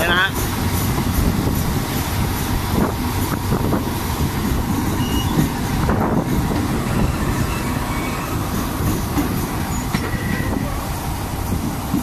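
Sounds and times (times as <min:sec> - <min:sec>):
train wheel-on-rail rush: 0:00.0 - 0:12.0
wind buffeting: 0:00.4 - 0:12.0.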